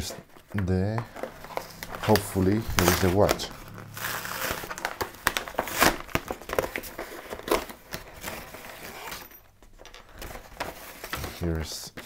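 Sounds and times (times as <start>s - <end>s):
paper tearing: 2.0s - 9.1s
paper crinkling: 4.1s - 9.2s.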